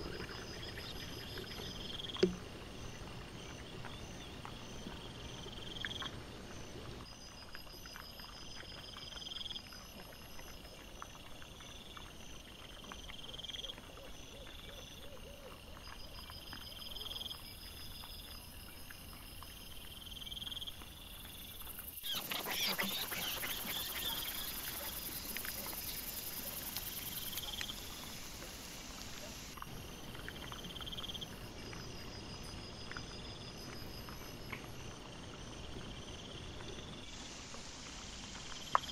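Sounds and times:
night insects chirping: 0:00.0 - 0:38.9
animal clicks and rustles: 0:20.7 - 0:31.4.

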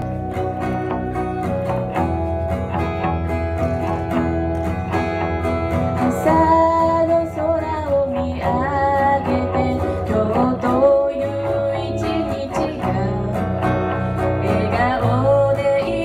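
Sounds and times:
acoustic guitar strumming: 0:00.0 - 0:16.0
woman singing into a microphone: 0:06.0 - 0:16.0.

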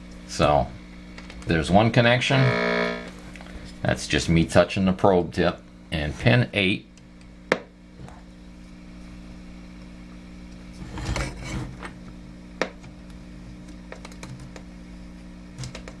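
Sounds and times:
speaker low hum: 0:00.0 - 0:04.4.

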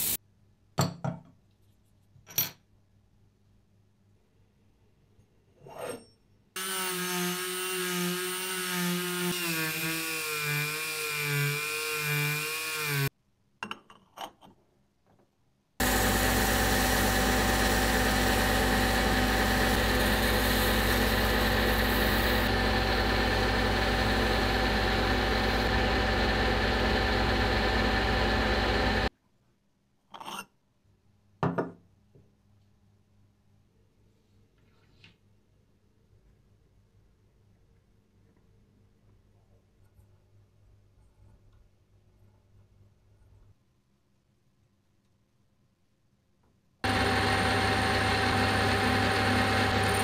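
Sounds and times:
metal lathe running: 0:15.8 - 0:29.1, 0:46.9 - 0:50.0
power tool wavering pitch: 0:15.8 - 0:29.1, 0:46.8 - 0:50.0.

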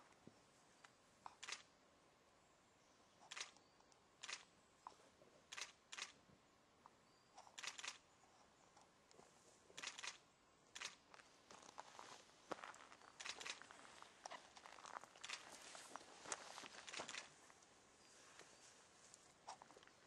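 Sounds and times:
crunches on gravel: 0:10.8 - 0:17.4.

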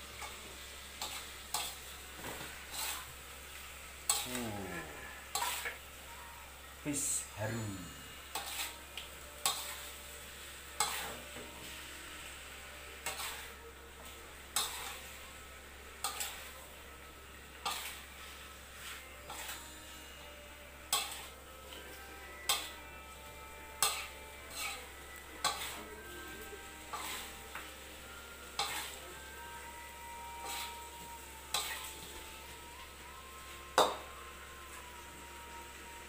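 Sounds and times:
frying sizzle: 0:00.0 - 0:36.0
metal spatula scraping a wok: 0:00.2 - 0:03.1, 0:04.0 - 0:04.4, 0:05.1 - 0:05.8, 0:08.2 - 0:10.0, 0:10.7 - 0:11.3, 0:12.1 - 0:13.6, 0:14.5 - 0:15.2, 0:16.0 - 0:16.6, 0:17.6 - 0:22.9, 0:23.7 - 0:26.0, 0:26.7 - 0:27.6, 0:28.4 - 0:29.0, 0:30.2 - 0:32.0.

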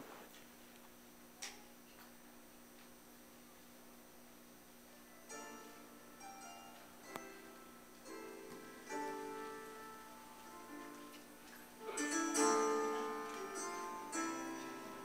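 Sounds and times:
faint steady hum: 0:00.0 - 0:15.0
quiet instrumental gospel music: 0:04.8 - 0:15.0.

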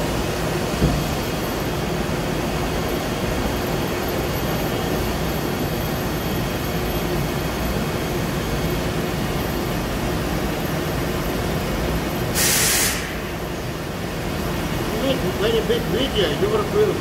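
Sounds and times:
machine shop equipment humming: 0:00.0 - 0:17.0
loud hiss: 0:12.3 - 0:13.4
faint steady whine: 0:13.2 - 0:17.0.

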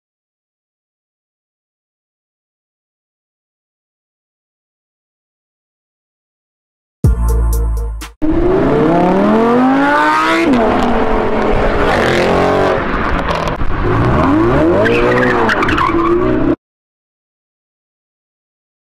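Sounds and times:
sports car engine accelerating: 0:08.2 - 0:16.6.

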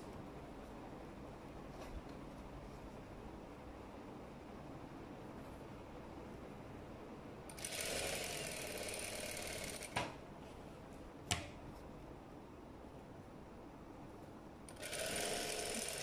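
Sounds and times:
sewing machine stitching: 0:07.5 - 0:10.0, 0:14.7 - 0:16.0.

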